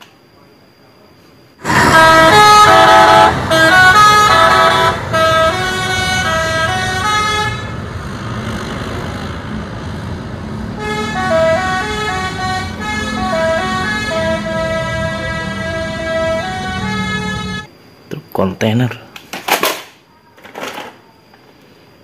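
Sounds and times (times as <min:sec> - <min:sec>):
musical air horn melody: 0:01.6 - 0:07.8, 0:10.7 - 0:17.7
bus engine running: 0:01.6 - 0:17.7.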